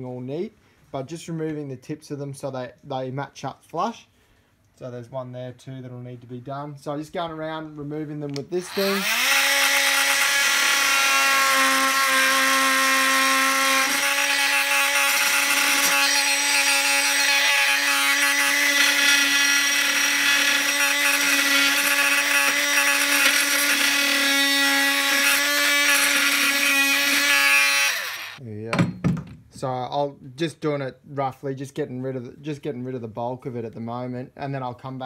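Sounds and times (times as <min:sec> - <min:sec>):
oscillating multi-tool cutting wood: 0:08.6 - 0:28.4.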